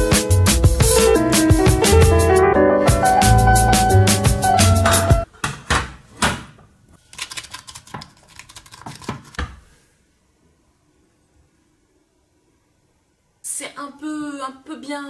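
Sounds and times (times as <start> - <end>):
background music: 0.0 - 5.3.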